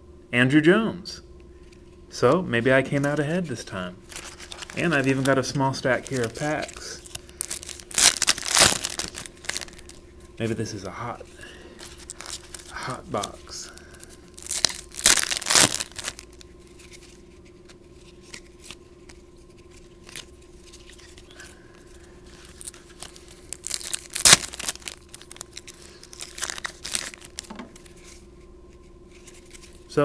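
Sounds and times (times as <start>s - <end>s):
foil pack tearing and crinkling: 4.1s - 10.0s, 11.4s - 17.2s, 18.0s - 28.1s.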